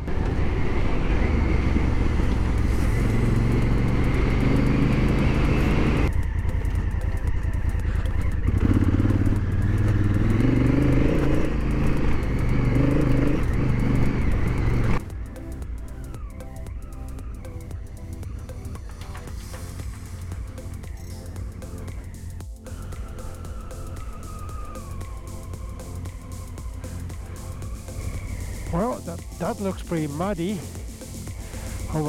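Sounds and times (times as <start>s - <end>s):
background music: 0.0s - 32.0s
motorcycle engine revving: 0.0s - 32.0s
rushing hiss: 19.2s - 32.0s.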